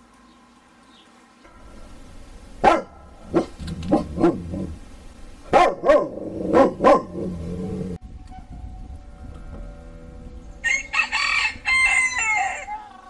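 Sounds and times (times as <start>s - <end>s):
dog barking: 2.6s - 4.8s, 5.5s - 7.4s.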